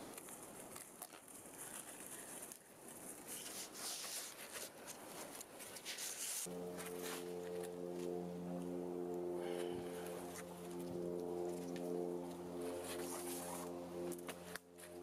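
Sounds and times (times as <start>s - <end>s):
cord rustling and scraping: 0.1s - 7.8s.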